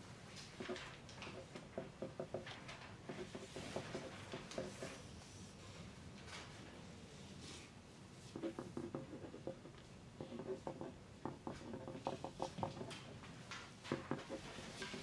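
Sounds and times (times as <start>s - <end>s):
pencils writing on paper: 0.5s - 5.4s, 8.2s - 15.0s.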